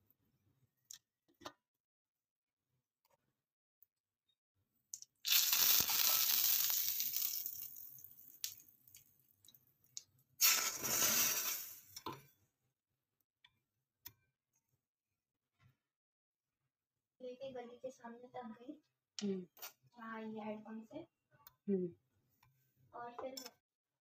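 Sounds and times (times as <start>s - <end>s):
hot spices sizzling: 5.2s - 9.5s, 10.4s - 12.1s.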